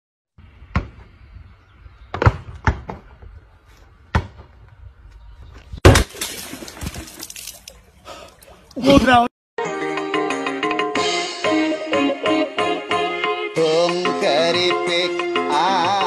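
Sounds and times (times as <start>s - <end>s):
ball bouncing on paving stones: 0.7s - 1.1s, 2.1s - 3.4s, 4.1s - 4.8s.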